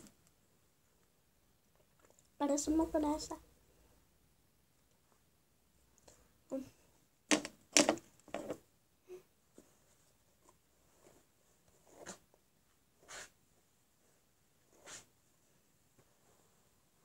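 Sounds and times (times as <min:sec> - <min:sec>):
hairbrush strokes through hair: 0:13.0 - 0:13.4, 0:14.7 - 0:15.1.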